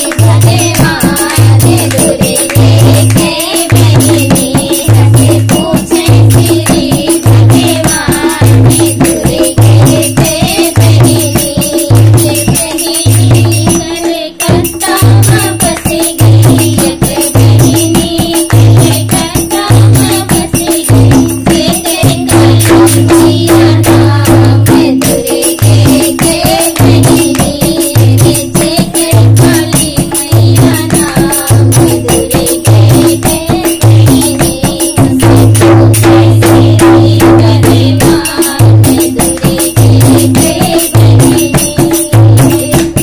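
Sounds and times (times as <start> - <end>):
rattling tambourine-like percussion: 0.0 - 43.0
person singing: 21.6 - 35.2.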